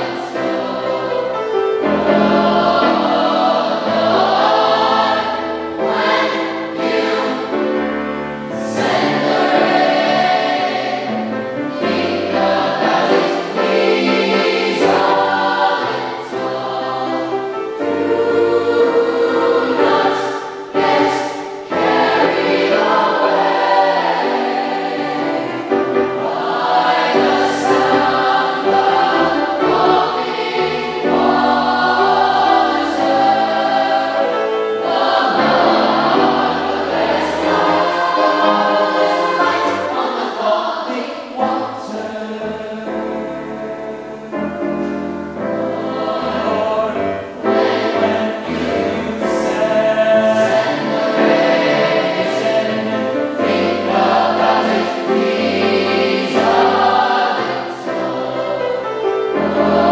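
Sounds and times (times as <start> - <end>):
children's choir singing: 0.0 - 59.9.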